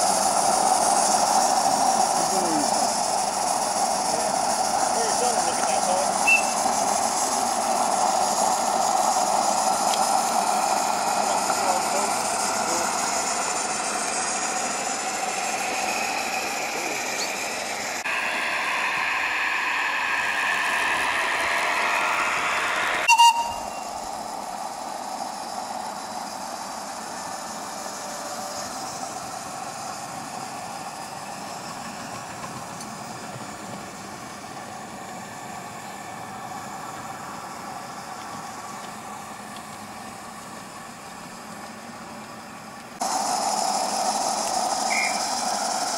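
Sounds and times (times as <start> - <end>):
model train wheels on rails: 0.0 - 45.9
wavering high tones: 20.7 - 24.1.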